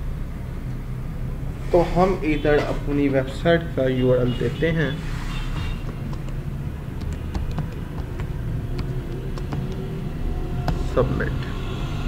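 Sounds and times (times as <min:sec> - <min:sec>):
computer input clicks: 0:05.8 - 0:09.8.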